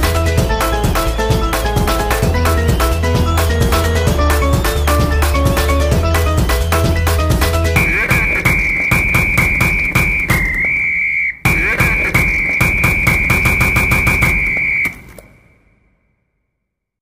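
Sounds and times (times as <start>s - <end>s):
quick steady beat: 0.0s - 10.8s, 11.5s - 14.8s
high whistle-like tone: 7.8s - 15.6s.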